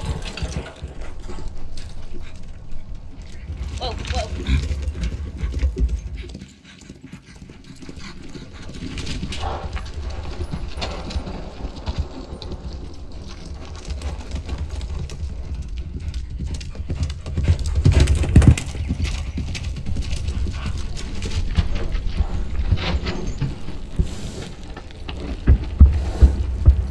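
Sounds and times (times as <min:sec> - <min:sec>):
horse galloping on dirt: 0:00.0 - 0:26.9.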